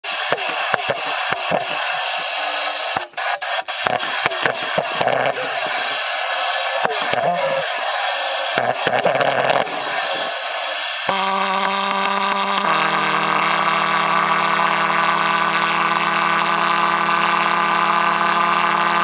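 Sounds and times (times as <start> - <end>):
dense hissing rush: 0.0 - 11.1
pulsejet engine sputtering and popping: 0.0 - 19.0.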